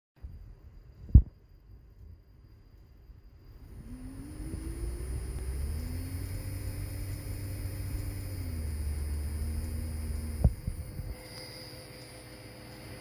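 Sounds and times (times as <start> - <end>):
strong low hum: 3.5 - 11.3
servo motor whine: 3.6 - 11.6.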